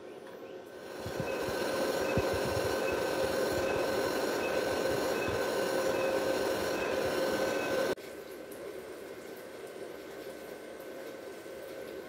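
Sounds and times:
welder cooling fan whirring: 0.0 - 8.0.

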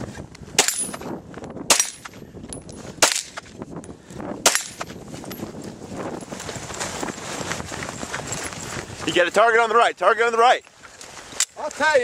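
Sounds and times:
pistol shots: 1.7 - 2.1, 3.0 - 3.4, 4.4 - 4.8.

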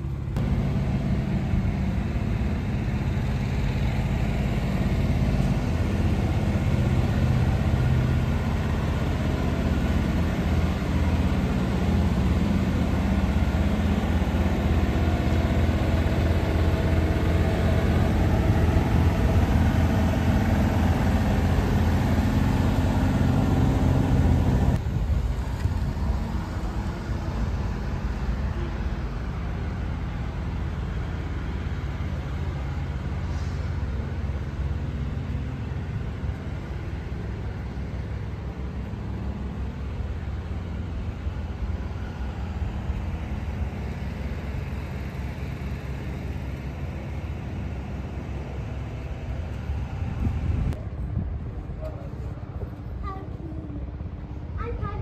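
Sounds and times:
diesel truck engine droning: 0.0 - 55.0.

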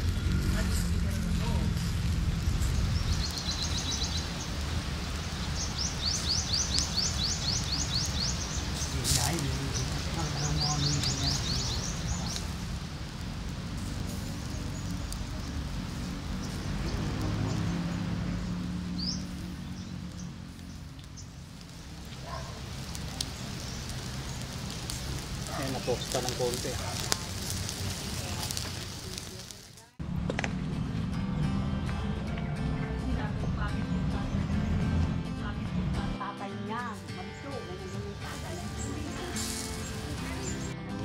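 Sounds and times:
wood fire crackling: 0.0 - 30.7, 36.8 - 40.8
low outdoor rumble: 0.0 - 41.0
bird singing rising chirps: 2.6 - 12.6, 14.2 - 26.6.

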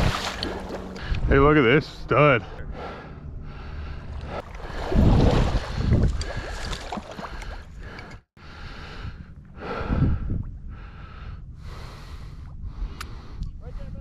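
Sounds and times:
wind buffeting microphone: 4.6 - 14.0.

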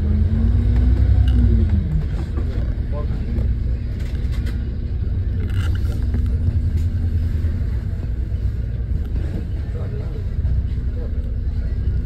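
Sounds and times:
bus drivetrain and road rumble: 0.0 - 12.0.

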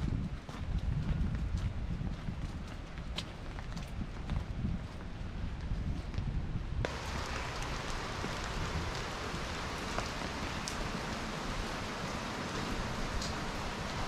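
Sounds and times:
rain on pavement and roof: 6.8 - 14.0.

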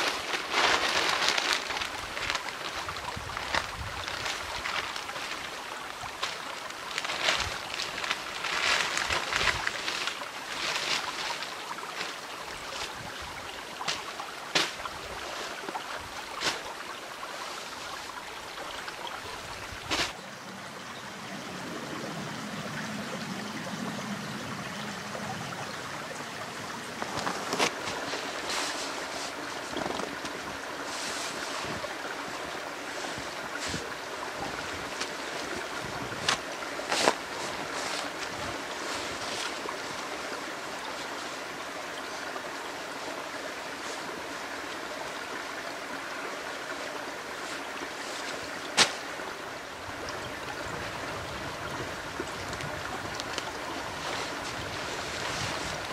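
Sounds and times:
small stream running: 0.0 - 55.9
outdoor gear rustling and knocking: 27.0 - 28.9, 29.6 - 30.6.

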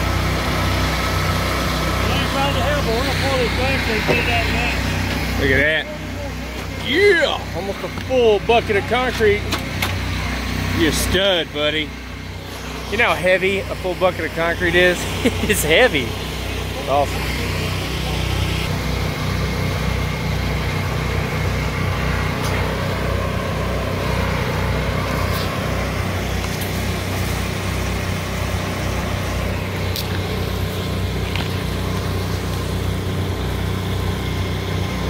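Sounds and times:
concrete mixer engine running: 0.0 - 35.0.

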